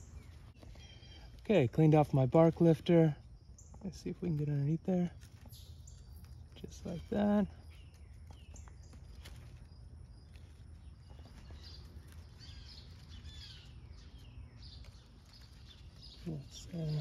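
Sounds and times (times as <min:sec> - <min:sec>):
faint birdsong chirps: 0:00.0 - 0:17.0.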